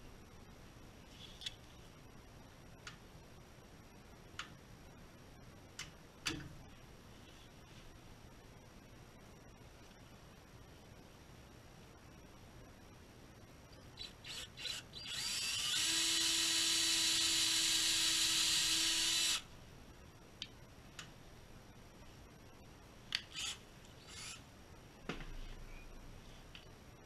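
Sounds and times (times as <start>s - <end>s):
cordless drill whining: 14.0s - 19.4s, 23.3s - 24.4s.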